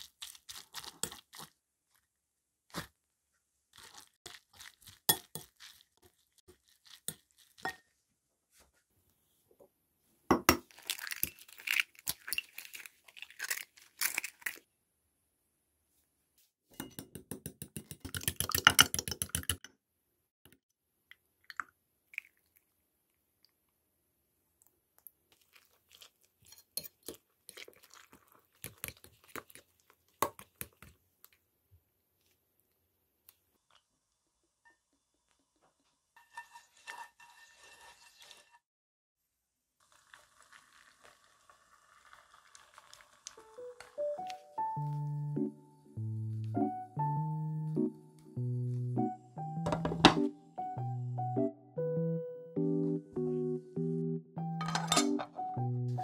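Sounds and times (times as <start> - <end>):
soft clinks and wet stirring: 3.8 - 8.0, 24.6 - 31.4
eggs cracking: 10.4 - 14.7, 17.2 - 19.7, 25.0 - 31.4, 39.9 - 45.1
liquid pouring: 21.4 - 22.8, 27.5 - 29.6, 39.8 - 44.4.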